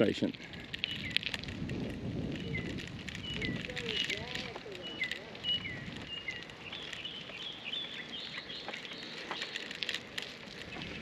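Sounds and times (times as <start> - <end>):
birds whistling and chirping: 0.8 - 1.3, 2.4 - 9.7.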